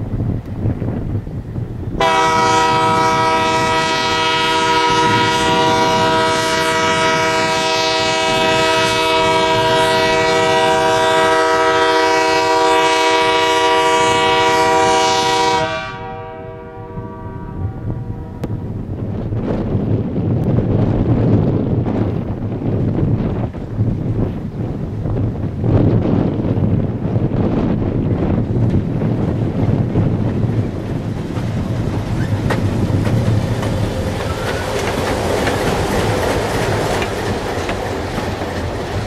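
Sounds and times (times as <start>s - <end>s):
locomotive air horn chord: 2.0s - 18.5s.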